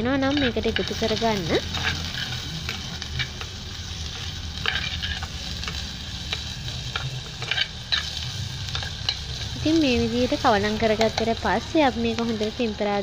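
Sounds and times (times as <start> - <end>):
onions sizzling in oil: 0.0 - 13.0
spoon tapping and scraping pot: 0.2 - 1.1, 4.1 - 8.1.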